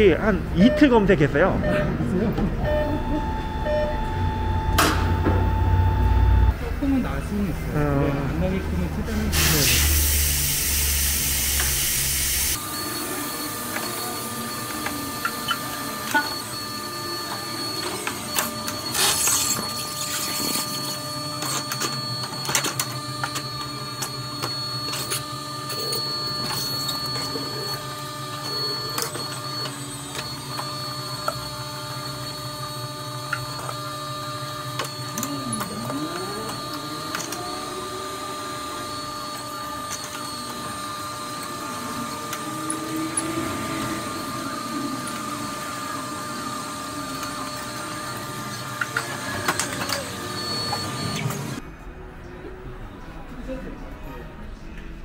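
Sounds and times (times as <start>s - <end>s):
motorized tool running: 8.4s - 51.6s.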